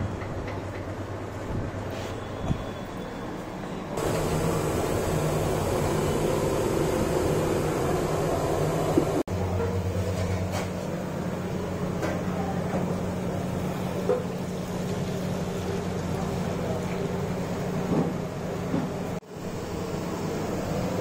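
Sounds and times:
food deep-frying in oil: 4.0 - 9.2, 9.8 - 21.0.

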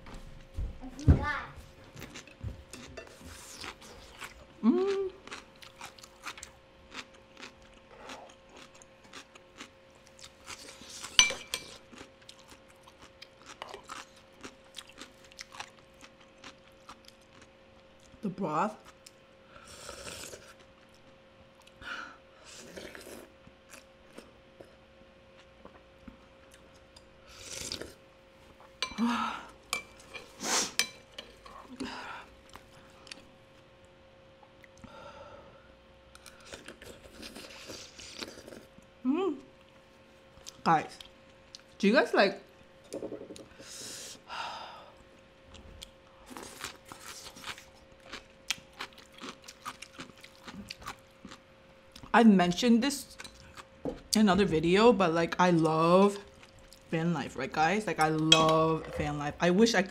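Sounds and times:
chewing crunchy food: 1.9 - 18.2, 36.2 - 38.9, 45.1 - 52.1, 53.0 - 54.2, 56.2 - 56.9
spoon clinking against ceramic bowl: 11.2 - 11.6.

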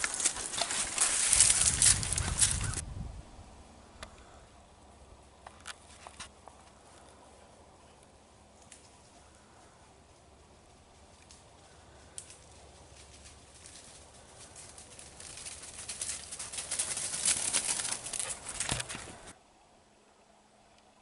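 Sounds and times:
footsteps crunching through dry leaves: 0.0 - 2.8.

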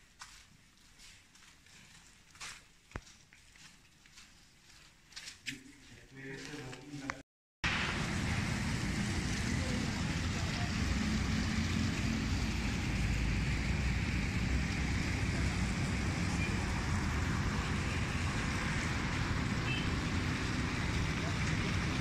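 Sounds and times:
steady rumbling with hiss: 7.7 - 22.0.

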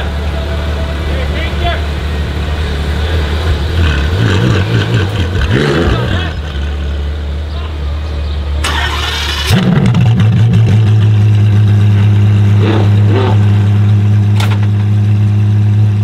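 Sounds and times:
car engine idling: 0.0 - 16.0
starter whirring: 8.6 - 9.6.

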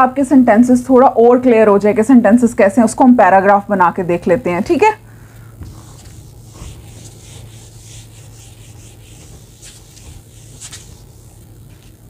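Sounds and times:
steady low hum: 0.0 - 12.0
eraser rubbing on whiteboard: 5.6 - 11.9.

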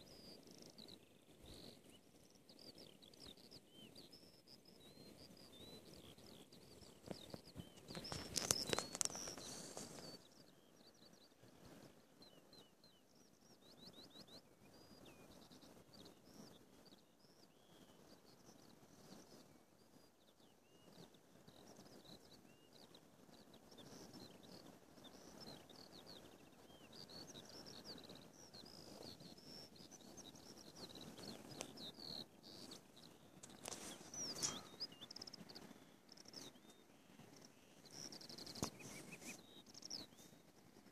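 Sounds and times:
skylark singing: 0.0 - 19.4, 20.0 - 40.9
wind rumbling on microphone: 6.0 - 10.2.

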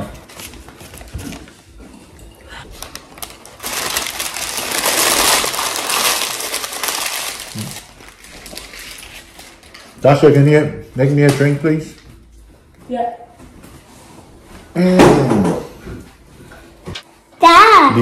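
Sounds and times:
paper wrapper crumpling: 2.7 - 10.0.

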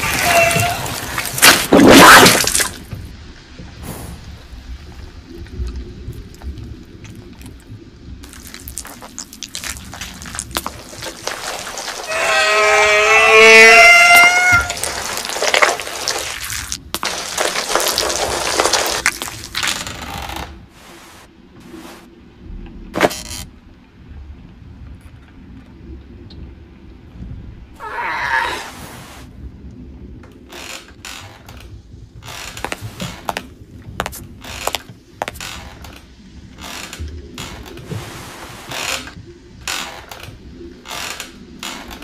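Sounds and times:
crackling and rustling with clicks: 0.0 - 22.0, 29.6 - 42.0
low rumble: 14.6 - 28.0.

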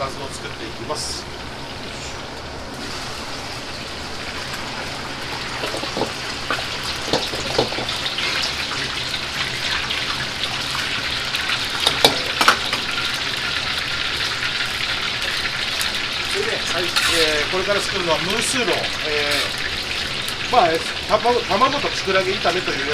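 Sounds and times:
gas burners running: 0.0 - 22.9
oil sizzling: 0.0 - 22.9
ladle scraping a wok: 16.6 - 17.6, 19.2 - 19.7.

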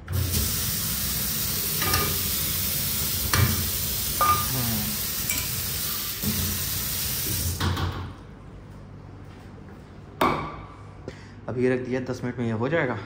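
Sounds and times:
water running from tap: 0.0 - 7.7.

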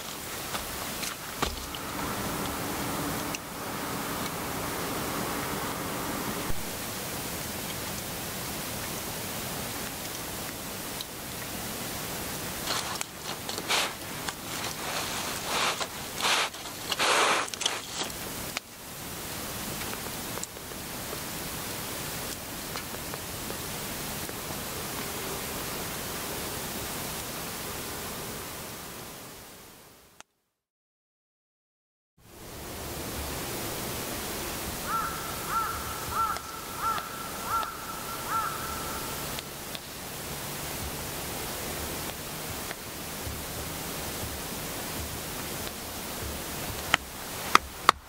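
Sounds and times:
wood fire crackling: 0.0 - 5.1, 6.5 - 24.4, 34.8 - 48.0
hissing of flaring logs: 0.0 - 27.8, 32.3 - 48.0
animal calling: 34.8 - 39.4.

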